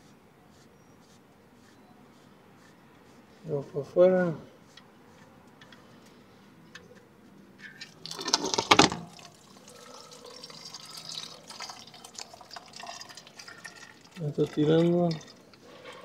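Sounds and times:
oil pouring and splashing: 0:07.7 - 0:16.0.

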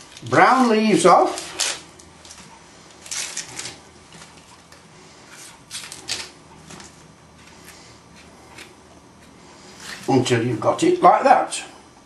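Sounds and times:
onion skin crackling: 0:00.0 - 0:04.6.

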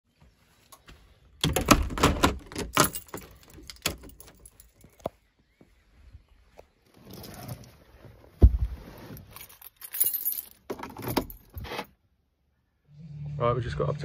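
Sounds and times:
door handle and lock clicks: 0:01.4 - 0:04.4
keys jangling: 0:01.4 - 0:05.0, 0:09.2 - 0:11.6.

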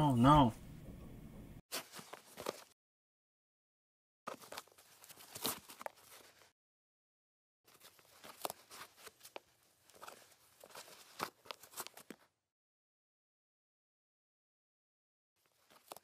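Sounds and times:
shoelaces scraping on sneaker: 0:01.7 - 0:02.8, 0:04.3 - 0:06.5, 0:07.7 - 0:12.3, 0:15.4 - 0:16.0.

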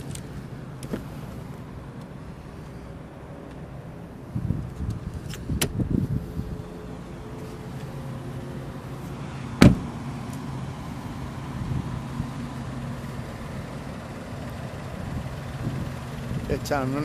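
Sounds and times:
car door shutting: 0:09.6 - 0:10.0.

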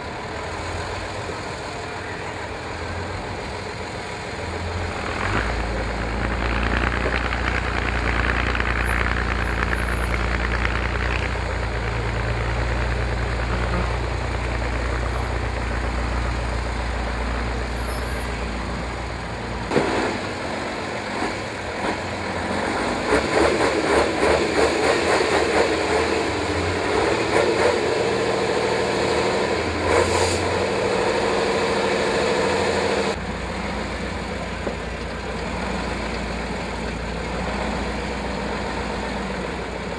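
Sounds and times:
truck engine running under load: 0:00.0 - 0:39.9.

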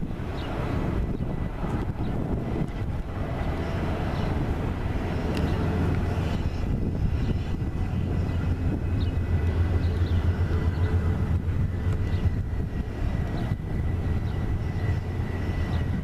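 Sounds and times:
diesel locomotive engines rumbling: 0:00.0 - 0:16.0.

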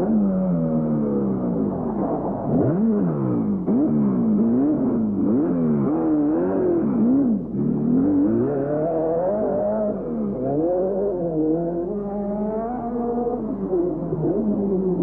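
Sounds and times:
car engine revving hard: 0:02.5 - 0:13.3.

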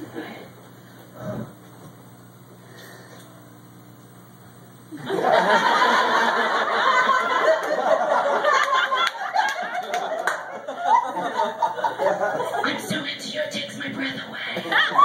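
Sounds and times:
audience laughing loudly: 0:05.0 - 0:12.8, 0:14.4 - 0:15.0.

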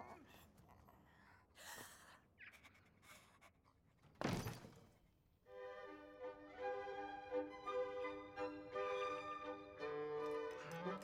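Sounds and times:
orchestral music with held strings: 0:05.5 - 0:11.0.

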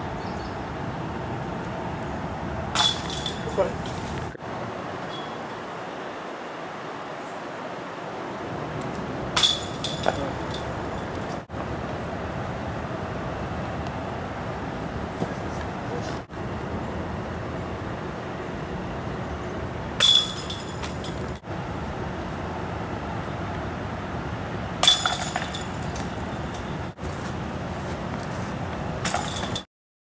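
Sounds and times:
discs striking basket chains: 0:02.7 - 0:04.4, 0:05.0 - 0:05.5, 0:09.4 - 0:11.4, 0:20.0 - 0:21.4, 0:24.8 - 0:26.9, 0:28.4 - 0:29.7.

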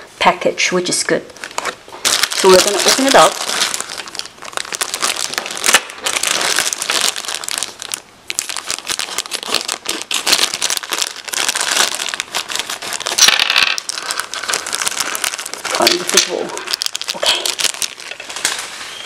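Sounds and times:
plastic bags crinkling: 0:01.4 - 0:19.0.

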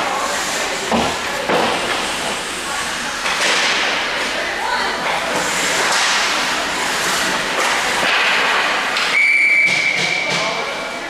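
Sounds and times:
skates scraping: 0:00.0 - 0:11.0
hockey sticks clattering: 0:03.2 - 0:10.8
referee's whistle blast: 0:09.1 - 0:10.4.

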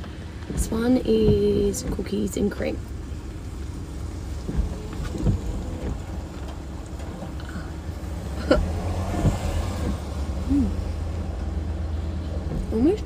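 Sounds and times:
car cabin rumble: 0:00.0 - 0:13.0
person humming: 0:10.5 - 0:10.8.

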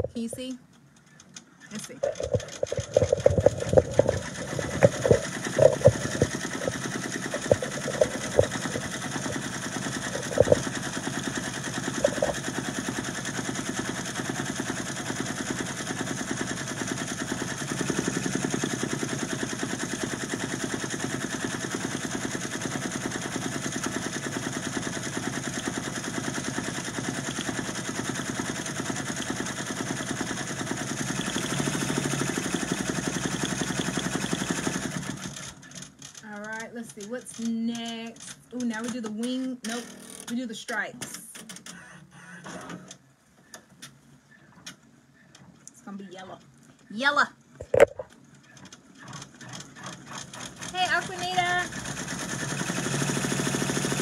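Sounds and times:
sharp clicks: 0:00.7 - 0:10.8
embroidery machine stitching: 0:01.1 - 0:41.8, 0:48.4 - 0:54.0.

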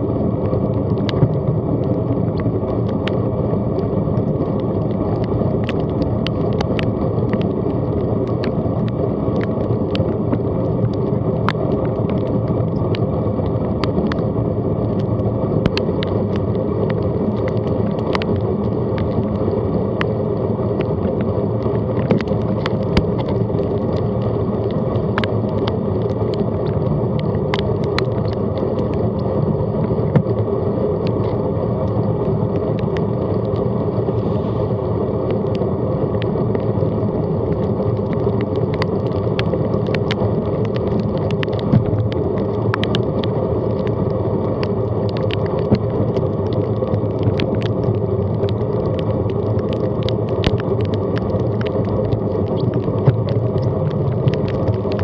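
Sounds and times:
raindrops ticking on camera: 0:00.0 - 0:55.0
wet tyre noise: 0:00.0 - 0:55.0
wind rumble: 0:00.0 - 0:55.0.

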